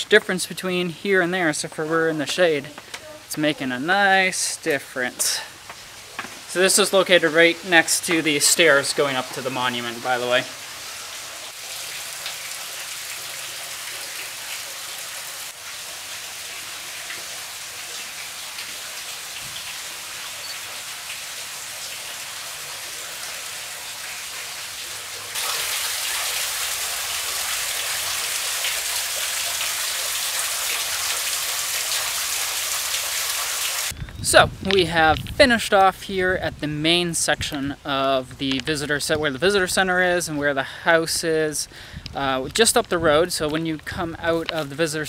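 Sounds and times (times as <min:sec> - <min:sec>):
water trickling and splashing: 0:01.2 - 0:34.0.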